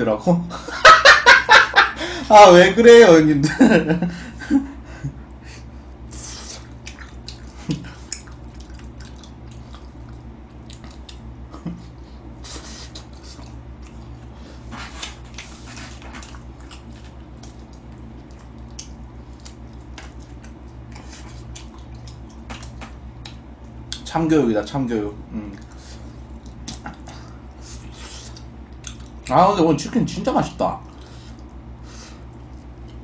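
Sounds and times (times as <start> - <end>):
steady low hum: 0.0 - 33.0
person chewing sticky food: 5.9 - 24.1, 25.4 - 29.4, 30.8 - 33.0.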